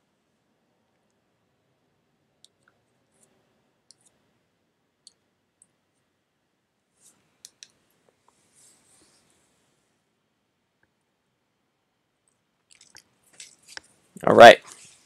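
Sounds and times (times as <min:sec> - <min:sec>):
small sharp clicks: 0:07.4 - 0:07.8.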